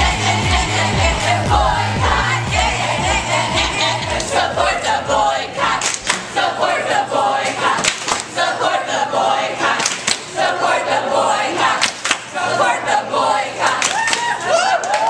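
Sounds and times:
sharp rhythmic hits: 0.0 - 6.4
group singing and chanting: 0.0 - 14.6.

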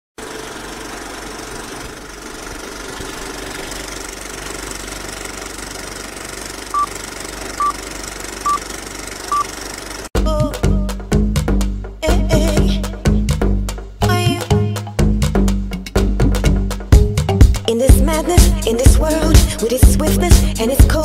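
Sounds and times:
mechanical rumbling drone: 0.2 - 10.1
short high beeps: 8.4 - 8.6
music: 10.2 - 21.0.

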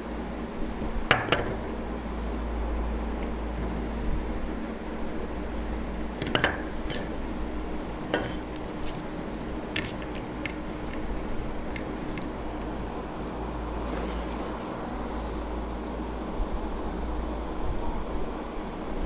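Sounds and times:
steady low hum: 0.0 - 19.0
food squished by hand: 6.2 - 15.4.

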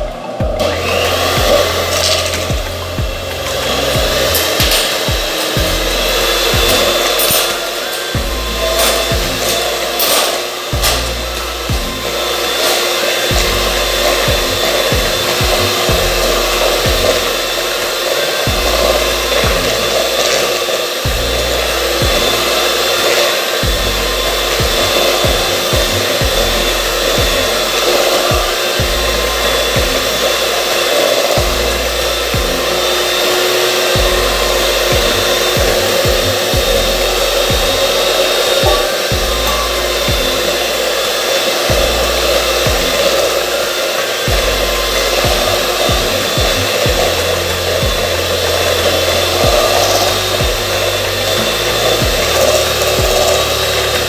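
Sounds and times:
electric hand mixer running: 0.0 - 54.0.

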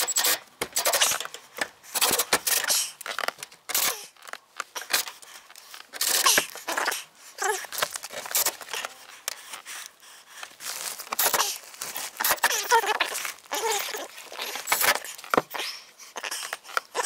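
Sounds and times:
foil duct crinkling and rustling: 2.8 - 15.5.

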